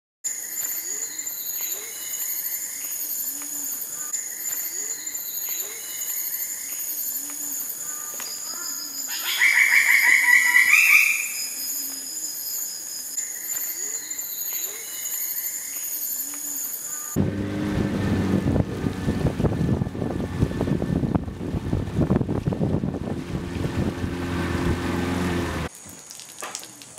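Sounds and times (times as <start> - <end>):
insects droning: 0.3 - 17.2
rising bird calls: 3.2 - 12.7
low animal calls: 7.9 - 12.0.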